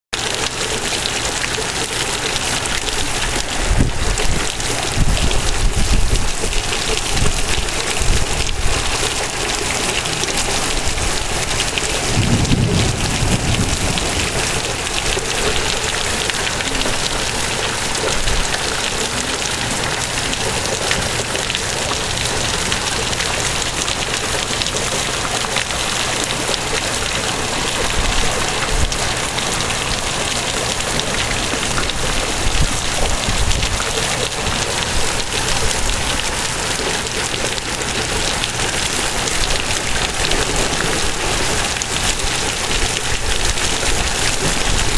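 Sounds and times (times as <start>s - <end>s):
heavy rain hissing: 0.2s - 44.9s
low rumbles: 10.7s - 18.5s.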